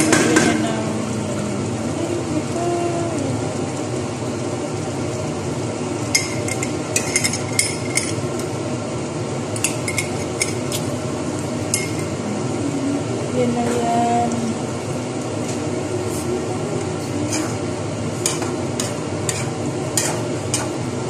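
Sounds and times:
utensil scraping metal pot: 0:17.1 - 0:17.6, 0:18.2 - 0:20.8.

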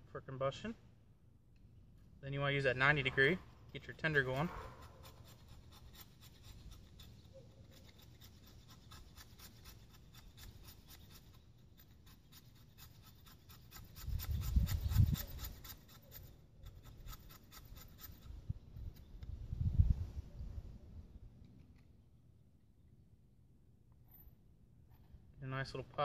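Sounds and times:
knife scraping wooden stick: 0:02.8 - 0:19.1.

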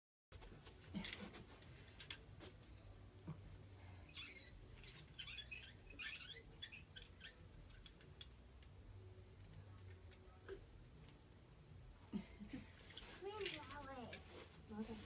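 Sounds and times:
office chair squeaking: 0:01.0 - 0:02.2, 0:04.0 - 0:08.2.

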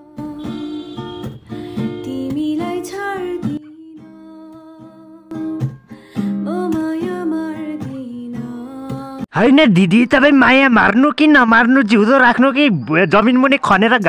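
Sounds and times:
acoustic guitar: 0:00.0 - 0:09.3.

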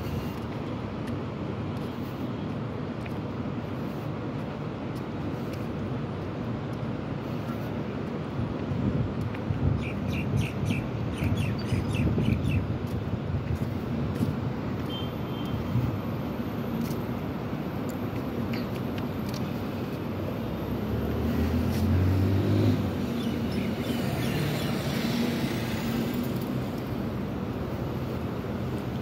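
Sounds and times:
city road traffic rumble: 0:00.0 - 0:29.0.

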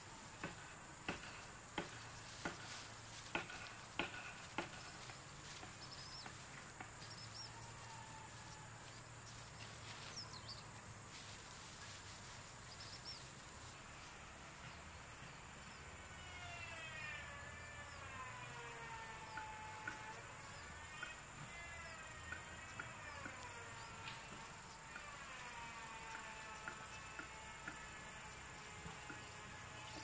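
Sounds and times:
distant roosters crowing: 0:00.0 - 0:30.0
high insect drone: 0:00.0 - 0:30.0
bird chirps: 0:04.4 - 0:07.7.

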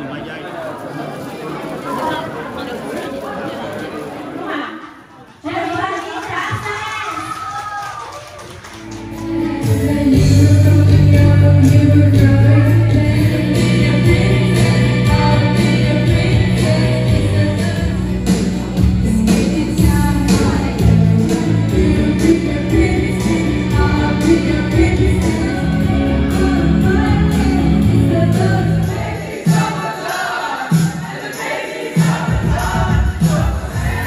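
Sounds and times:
karaoke backing track: 0:08.5 - 0:34.0
woman singing into microphone: 0:09.1 - 0:29.2
audience singing along: 0:09.4 - 0:18.4, 0:20.6 - 0:34.0.

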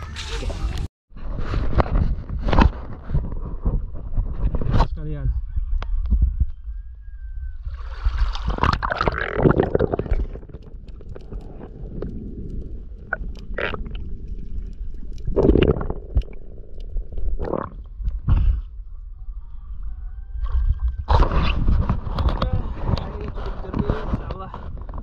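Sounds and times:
water splashing: 0:07.8 - 0:18.0.

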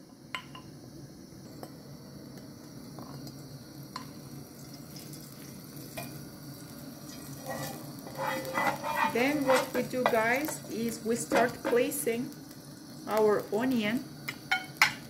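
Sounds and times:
steady low hiss: 0:00.0 - 0:15.0
wooden spoon scraping a bowl: 0:07.4 - 0:09.8.

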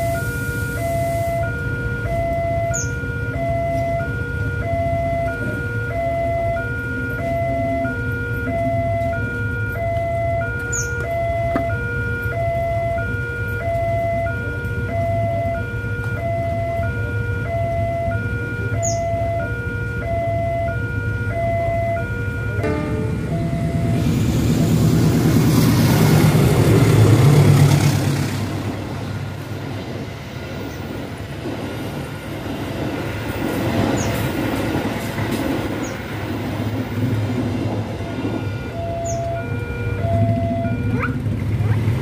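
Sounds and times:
level crossing two-tone alarm: 0:00.0 - 0:24.2, 0:38.2 - 0:41.4.

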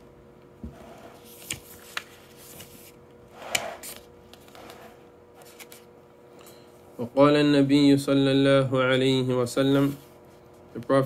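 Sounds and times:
book pages rustling: 0:01.2 - 0:03.0, 0:03.8 - 0:05.9.

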